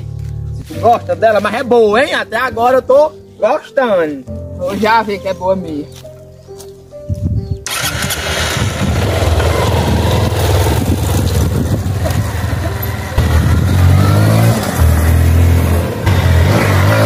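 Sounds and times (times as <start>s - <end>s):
motorcycle engine revving: 7.6s - 17.0s.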